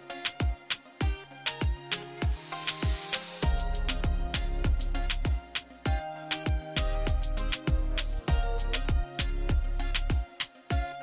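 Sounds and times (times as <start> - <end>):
hi-hat hits: 0.0 - 11.0
bass drum kicks: 3.4 - 6.0, 6.8 - 10.2.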